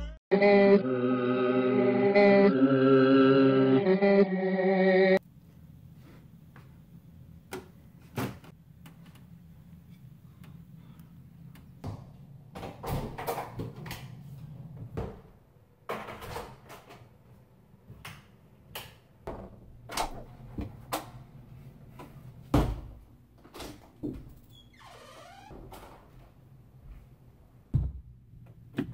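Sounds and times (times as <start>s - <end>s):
knocks and bumps in a house: 11.8s - 14.0s, 22.0s - 26.4s.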